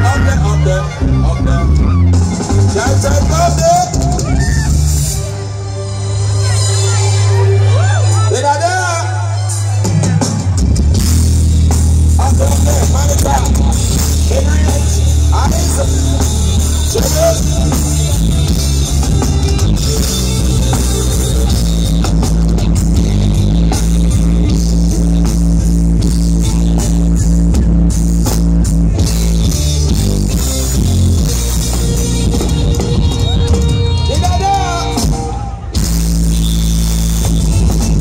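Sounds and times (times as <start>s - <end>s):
drum kit: 0.0s - 5.4s, 9.4s - 38.0s
guitar: 0.0s - 38.0s
heavy bass: 0.0s - 38.0s
keyboards: 0.0s - 38.0s.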